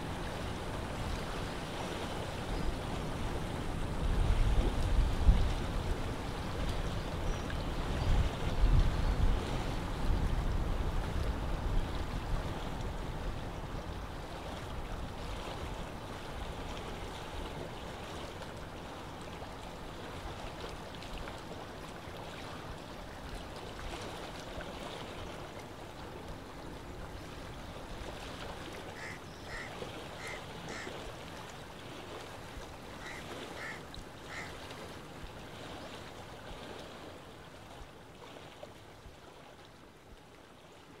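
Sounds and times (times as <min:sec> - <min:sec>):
lake water lapping: 0:00.0 - 0:41.0
wind: 0:00.0 - 0:41.0
bird calling clear notes: 0:29.0 - 0:30.9.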